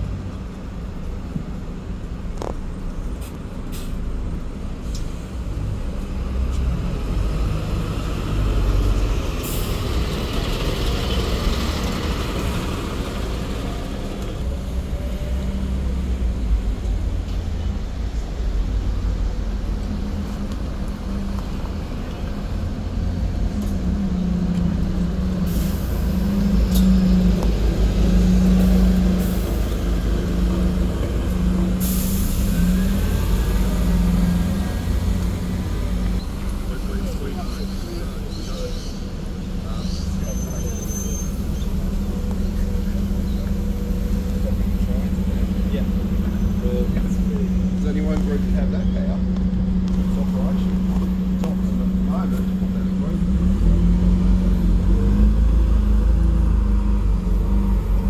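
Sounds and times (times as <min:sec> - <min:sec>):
bus pulling away: 0:00.0 - 0:58.0
bus engine droning past: 0:05.2 - 0:58.0
air brake hisses: 0:31.8 - 0:32.6.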